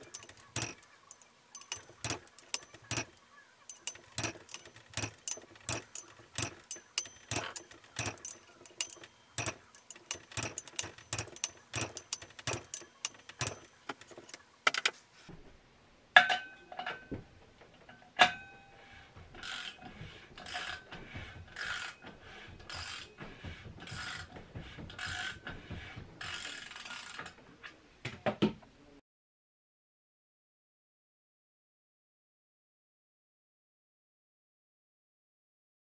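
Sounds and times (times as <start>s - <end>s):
hand ratchet clicking: 0.0s - 14.4s
loud ringing metallic clicks: 0.0s - 14.4s.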